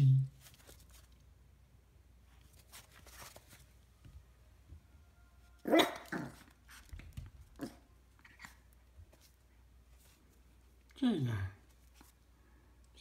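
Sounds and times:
puppy barking: 5.6 - 6.5.

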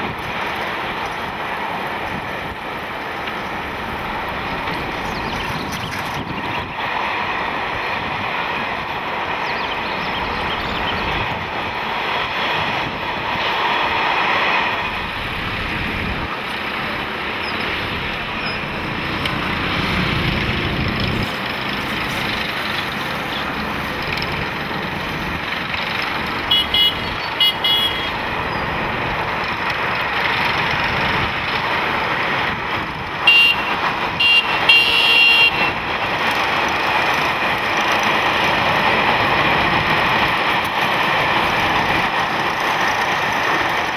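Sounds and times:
road traffic: 0.0 - 43.9
vehicle horns beeping: 26.4 - 28.2, 33.2 - 35.8.

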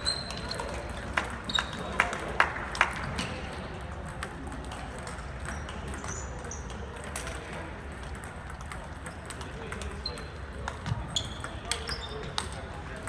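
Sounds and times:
brief high squeak: 0.0 - 0.7
hum of large hall: 0.0 - 13.0
table tennis ball clicking: 4.0 - 12.6.

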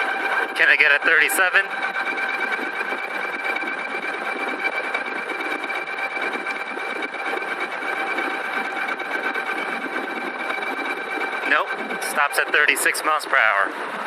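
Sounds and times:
electric motor whining: 0.0 - 14.0
wind rushing: 0.0 - 14.0
road noise: 8.9 - 14.0.

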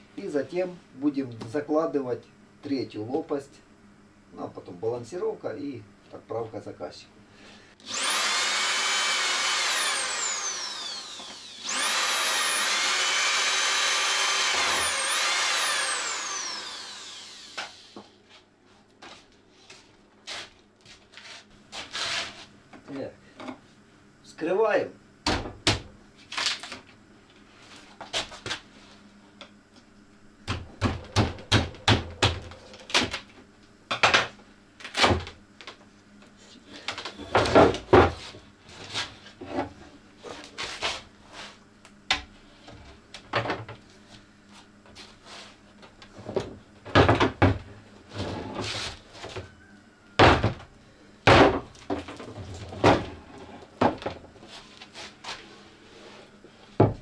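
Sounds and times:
knocks and thuds on a workbench: 25.2 - 25.9, 30.5 - 33.1, 37.3 - 38.3, 43.3 - 43.8, 46.2 - 47.7, 50.2 - 50.7, 51.3 - 53.2, 53.8 - 54.3, 56.8 - 57.0.

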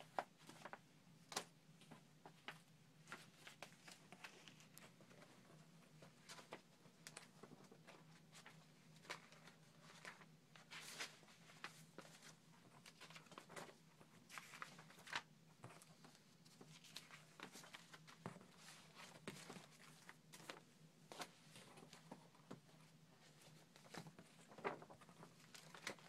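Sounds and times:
paper rustling: 0.0 - 26.0.

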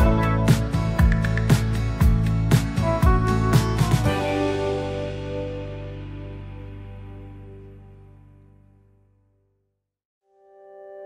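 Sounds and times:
background music with steady beat: 0.0 - 7.8
sustained instrumental chords: 0.0 - 8.8.

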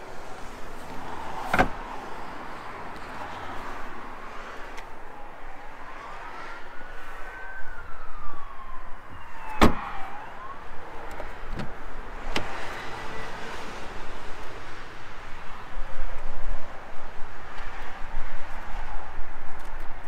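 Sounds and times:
car door shutting: 1.4 - 1.8, 9.5 - 9.8, 11.1 - 12.6
car door latch clicking: 1.5 - 1.8
siren wailing: 5.0 - 11.4.

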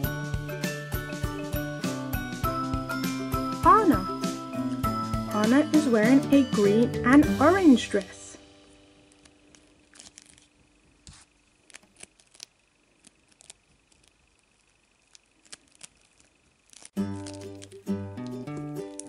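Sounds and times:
music: 0.0 - 9.2, 17.0 - 19.0
fingers handling plastic toy: 9.2 - 19.0.

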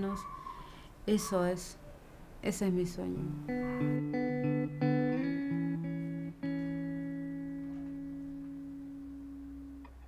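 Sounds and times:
plucked guitar music: 3.0 - 10.0.

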